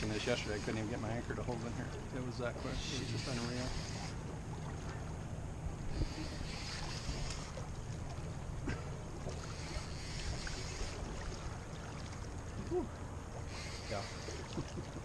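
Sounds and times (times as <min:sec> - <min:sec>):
boat engine low rumble: 0:00.0 - 0:15.0
water around boat hull: 0:00.0 - 0:15.0
hiss: 0:06.0 - 0:07.4, 0:13.5 - 0:14.4.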